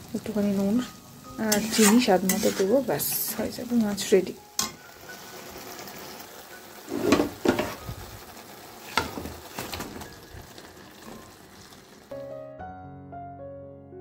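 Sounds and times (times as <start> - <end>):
paste sizzling in oil: 0.0 - 12.2
soft piano music: 0.0 - 14.0
metal spatula scraping a pan: 0.8 - 3.4, 6.8 - 7.8, 8.8 - 9.8.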